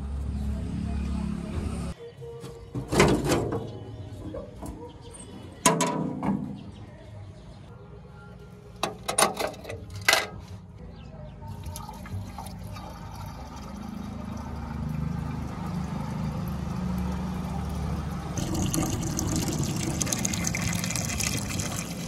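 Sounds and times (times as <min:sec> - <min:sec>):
metal filler cap clanking: 0:05.6 - 0:06.6, 0:08.8 - 0:10.4.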